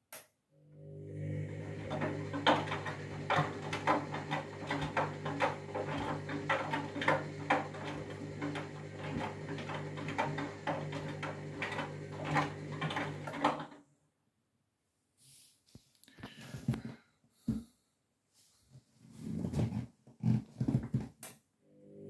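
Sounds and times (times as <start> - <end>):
washing machine motor hum: 0.6 - 13.8.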